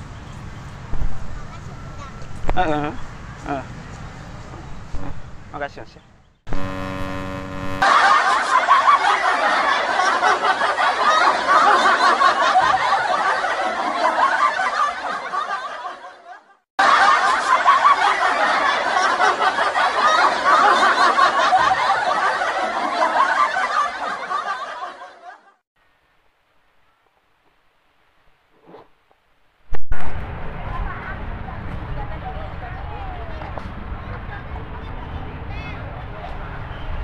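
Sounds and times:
laugh track: 7.7s - 25.6s.

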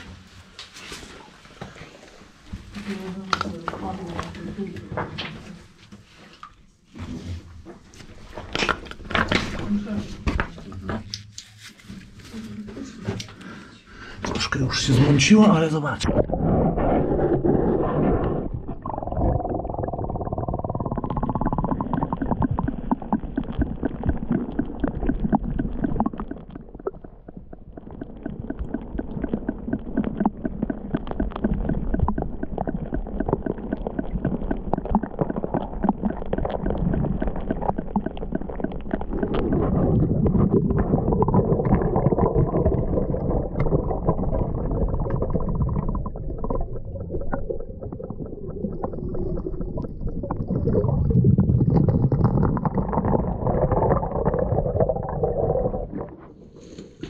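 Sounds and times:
muffled underwater gurgling: 14.9s - 56.3s.

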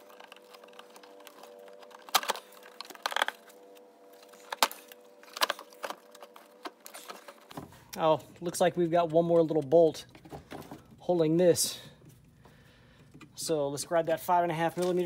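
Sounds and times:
hard plastic cracking and knocking: 0.0s - 7.8s.

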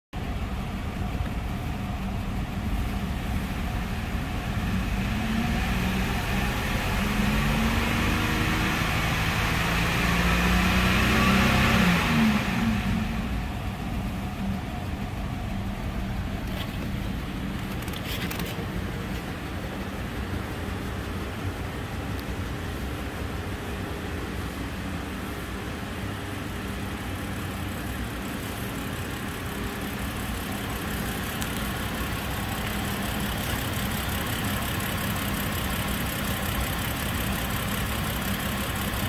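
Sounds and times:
car engine idling and revving: 0.2s - 39.0s.

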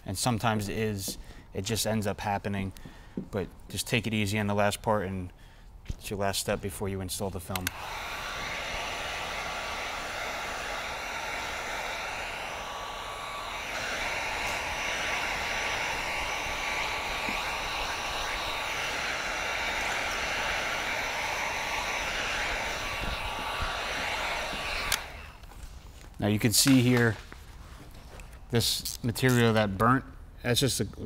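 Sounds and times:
fan motor whine: 7.6s - 25.6s
heat gun blower hissing: 7.6s - 25.9s.

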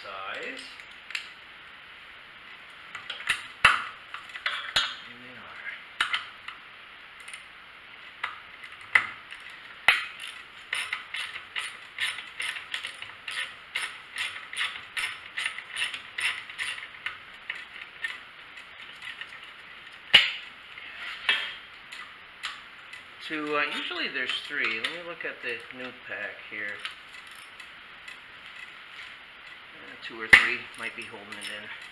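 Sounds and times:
ratchet wrench clicking: 9.3s - 16.9s.

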